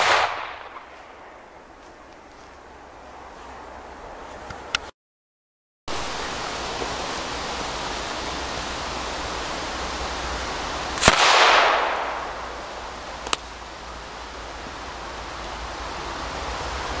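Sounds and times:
firecracker bang: 0.0 - 1.2, 11.0 - 13.5
steady rushing hiss: 5.9 - 17.0.

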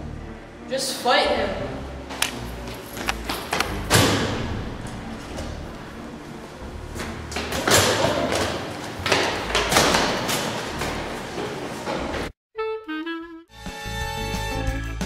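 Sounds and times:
metal door banging open: 3.6 - 5.7, 7.4 - 12.3.

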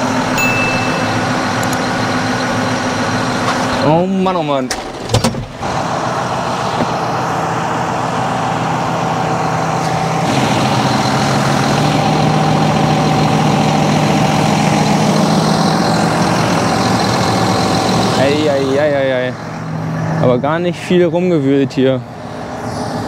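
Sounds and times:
high-pitched whine: 0.0 - 4.0
tractor diesel engine running: 0.0 - 23.0.

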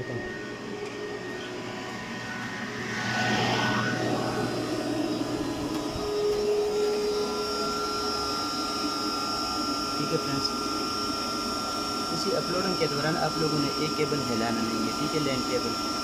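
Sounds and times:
cooling fans whirring: 0.0 - 16.0
steady whining tones: 0.0 - 16.0.

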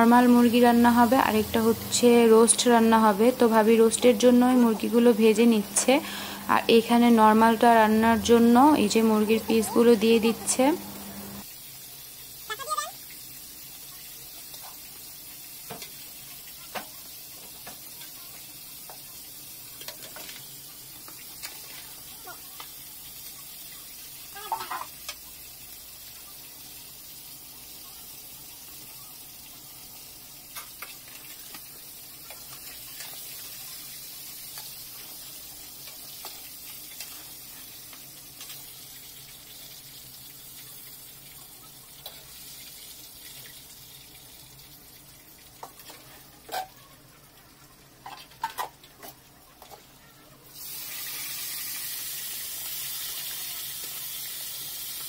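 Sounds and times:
chicken deep-frying in oil: 0.0 - 55.0
chicken sizzling in a pot: 0.0 - 55.0.

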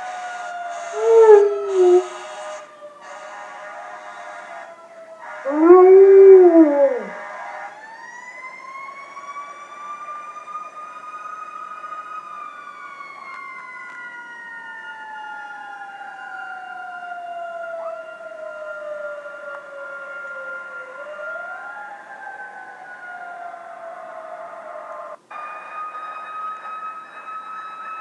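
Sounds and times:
fire truck siren wailing: 0.0 - 28.0
dog howling: 1.0 - 2.2, 5.5 - 7.2.

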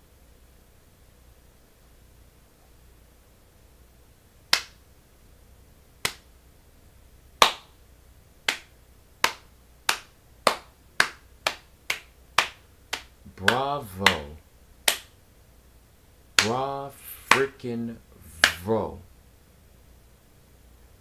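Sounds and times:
fingers snapping: 4.5 - 4.8, 6.0 - 6.3, 8.5 - 15.1.

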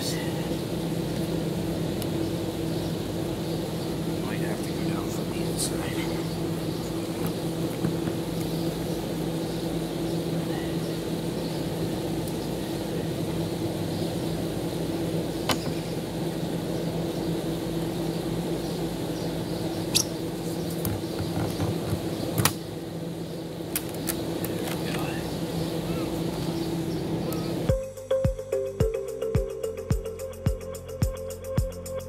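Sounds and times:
steady machine hum: 0.0 - 32.0.

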